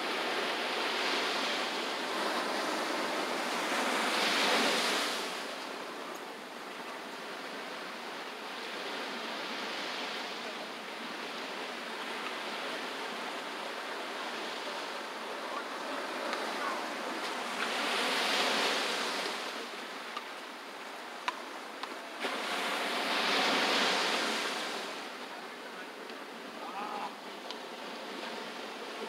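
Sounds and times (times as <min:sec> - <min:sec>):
waves breaking on a beach: 0:00.0 - 0:29.0.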